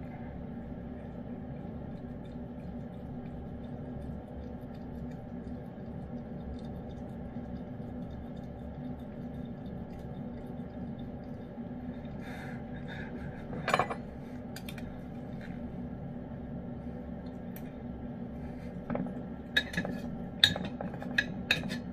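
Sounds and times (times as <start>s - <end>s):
cat licking and chewing food: 0.0s - 13.5s
low hum: 0.0s - 21.9s.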